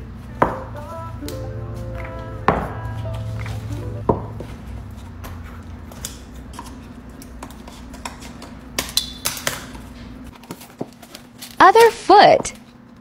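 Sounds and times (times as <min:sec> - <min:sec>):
low steady hum: 0:00.0 - 0:07.6.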